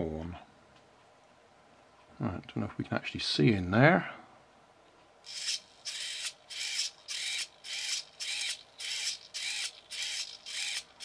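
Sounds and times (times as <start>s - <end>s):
servo motor whirring: 5.3s - 11.0s.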